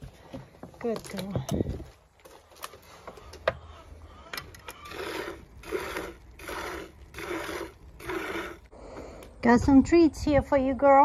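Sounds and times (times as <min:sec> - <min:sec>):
milk squirting into bucket: 0:04.8 - 0:08.7.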